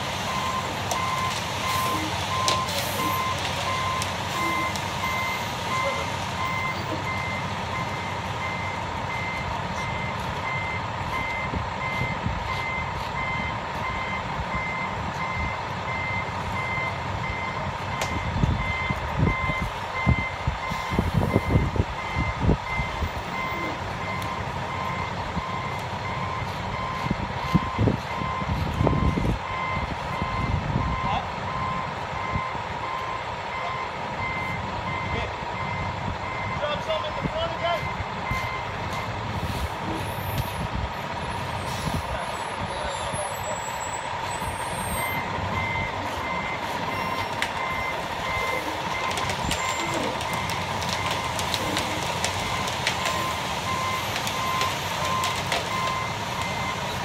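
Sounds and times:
truck backup alarm beeping: 0.0 - 57.0
truck engine running: 0.0 - 57.0.

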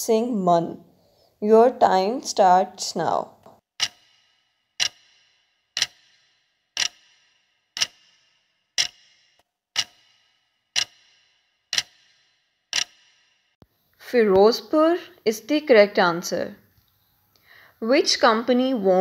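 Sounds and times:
clock ticking: 3.8 - 13.4.

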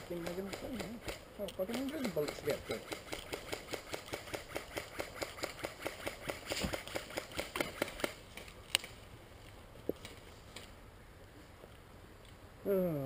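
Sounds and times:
rapid mechanical clicking: 0.0 - 8.8.

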